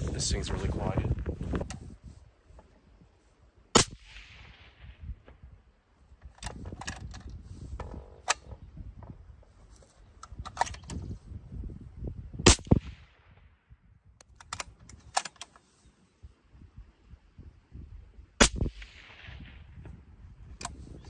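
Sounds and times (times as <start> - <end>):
suppressed rifle shot: 3.7 - 5.5, 12.4 - 13.5, 18.4 - 20.0
metallic clicks and knocks: 6.2 - 9.1, 9.8 - 11.1, 14.2 - 15.6.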